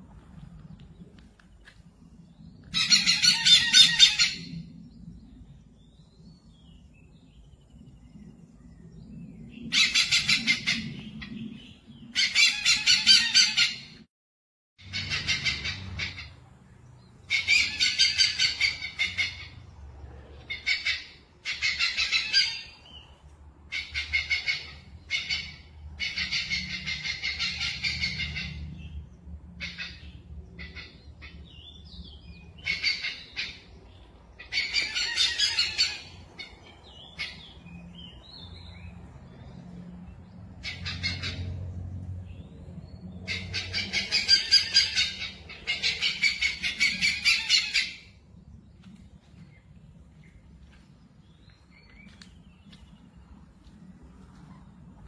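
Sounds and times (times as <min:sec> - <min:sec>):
hornbills calling: 0:02.7 - 0:04.5, 0:14.8 - 0:16.4, 0:17.2 - 0:19.6, 0:20.4 - 0:23.0, 0:23.7 - 0:28.9, 0:29.6 - 0:32.0, 0:32.6 - 0:37.7, 0:40.6 - 0:41.6, 0:43.2 - 0:48.2.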